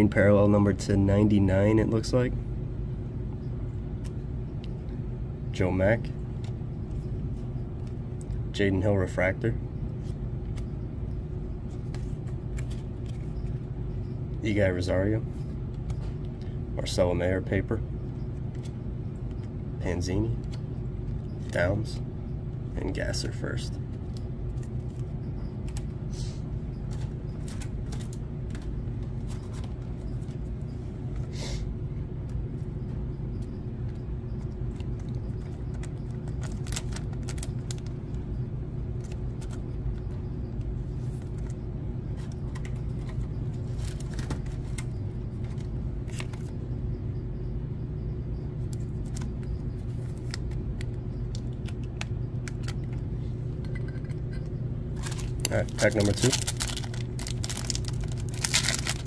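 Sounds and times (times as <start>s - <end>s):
low background hum: 0.0s - 59.0s
trading cards rustling: 11.6s - 13.7s, 24.0s - 25.9s, 26.8s - 30.6s, 34.0s - 38.0s, 38.9s - 46.6s, 48.6s - 53.1s, 54.9s - 59.0s.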